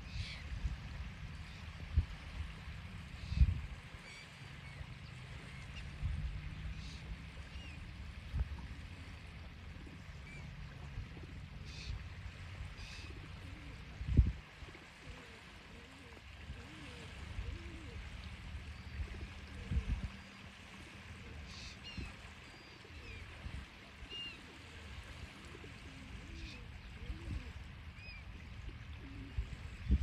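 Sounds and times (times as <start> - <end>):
pigeons cooing: 12.8 - 20.1, 24.0 - 27.7, 28.8 - 29.6.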